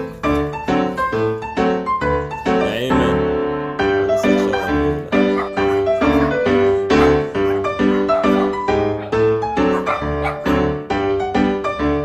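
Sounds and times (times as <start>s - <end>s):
piano melody over chords: 0.0s - 12.0s.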